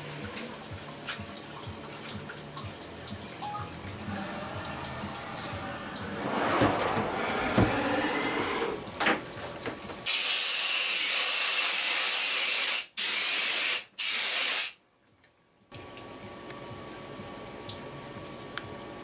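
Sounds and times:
coolant splashing and trickling: 0:00.0 - 0:11.0
loud hiss of spray: 0:10.1 - 0:14.8.

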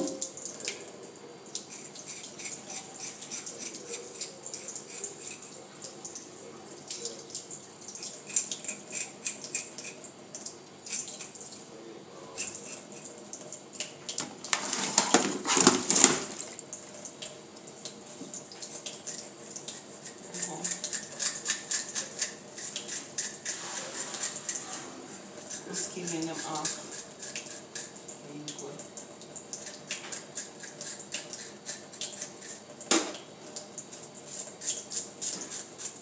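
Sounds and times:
tap water running into sink: 0:00.0 - 0:11.6, 0:12.3 - 0:36.0
clicks and scrapes against sink: 0:14.2 - 0:16.4
fish rubbed by hand: 0:23.3 - 0:24.9.

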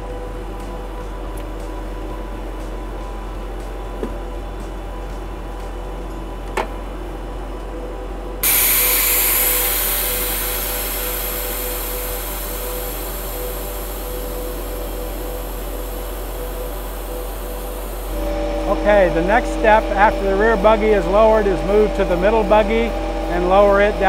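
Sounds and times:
machine engine humming: 0:00.0 - 0:24.0
loud hiss of escaping air: 0:08.4 - 0:18.3.

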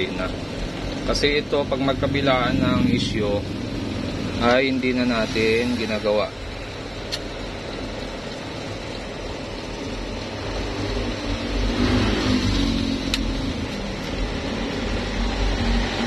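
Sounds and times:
low engine-like rumble: 0:00.0 - 0:11.6.

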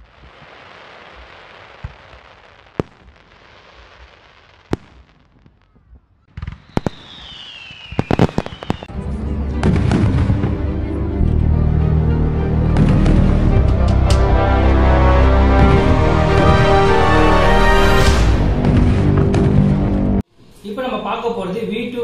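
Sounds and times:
fireworks bangs and crackles: 0:00.0 - 0:09.0, 0:09.6 - 0:10.6, 0:18.0 - 0:20.0
firework descending whistle: 0:06.4 - 0:08.9
background music: 0:08.9 - 0:20.2.

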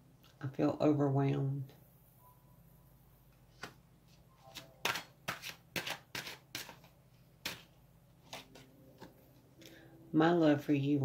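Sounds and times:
cards clicking and slapping on table: 0:03.6 - 0:03.8, 0:04.5 - 0:07.7.

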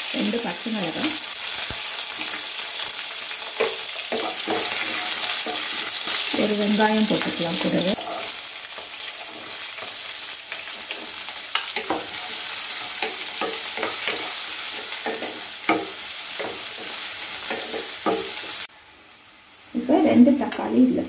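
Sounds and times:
onion sizzling in oil: 0:00.0 - 0:21.0
wooden spatula scraping pan: 0:07.5 - 0:10.0.

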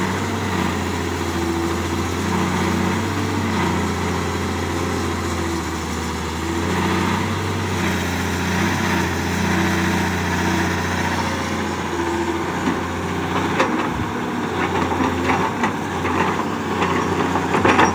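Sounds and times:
excavator diesel engine running: 0:00.0 - 0:17.9
hydraulics hum: 0:00.0 - 0:17.9
soil clattering into steel truck bed: 0:14.6 - 0:17.9.

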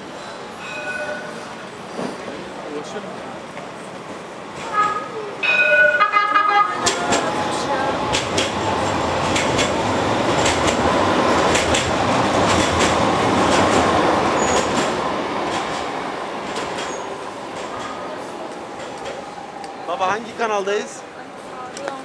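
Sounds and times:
tram wheels rolling: 0:00.0 - 0:22.0
high wheel squeals: 0:00.5 - 0:01.5
wheels clacking over rails: 0:04.5 - 0:18.0.

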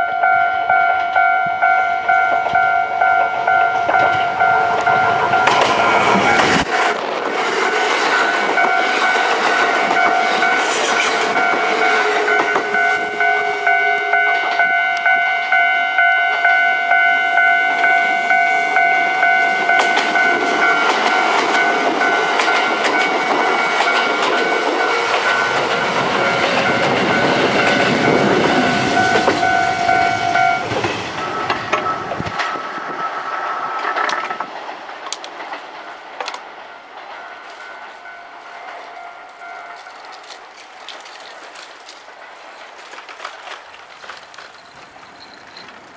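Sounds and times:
level crossing bell ringing: 0:00.0 - 0:06.7, 0:08.2 - 0:32.2, 0:37.0 - 0:40.3
train wheels clacking on rails: 0:02.1 - 0:45.9.

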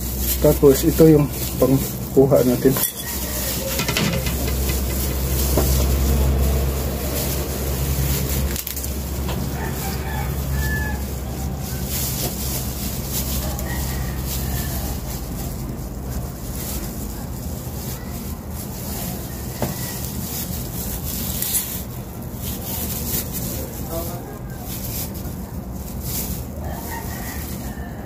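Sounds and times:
steady low hum and hiss: 0:00.0 - 0:28.0
rooster crowing: 0:02.7 - 0:05.0, 0:09.2 - 0:12.0, 0:13.2 - 0:15.2, 0:26.6 - 0:28.0.

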